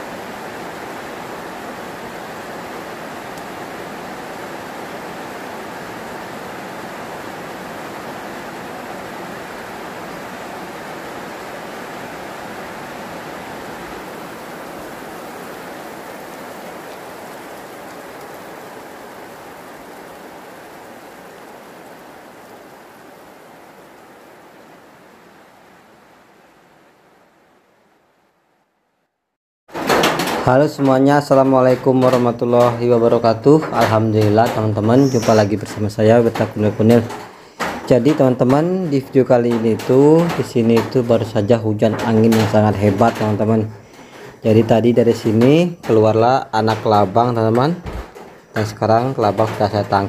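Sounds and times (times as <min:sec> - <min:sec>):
heavy rain falling: 0:00.0 - 0:27.3, 0:29.7 - 0:50.0.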